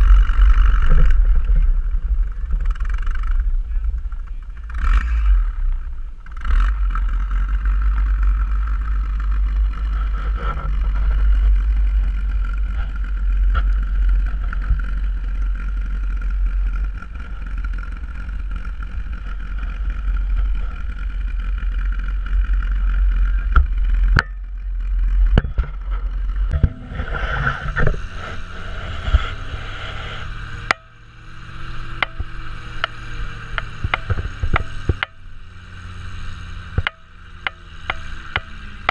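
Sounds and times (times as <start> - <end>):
snowcat engine and tracks: 0.0 - 38.9.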